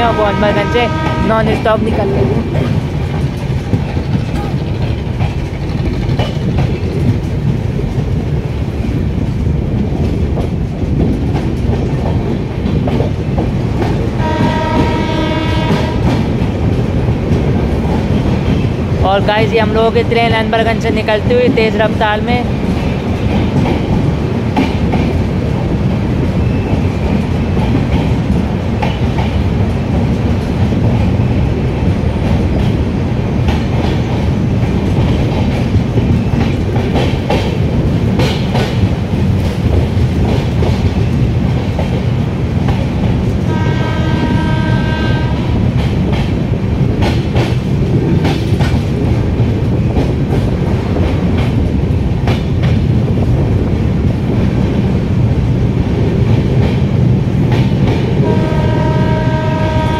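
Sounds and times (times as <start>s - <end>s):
train horn: 0.0s - 1.5s, 14.2s - 16.2s, 43.5s - 45.6s, 58.2s - 59.9s
train rumble and air rush: 0.0s - 59.9s
wheels clattering over rail joints: 2.2s - 8.2s.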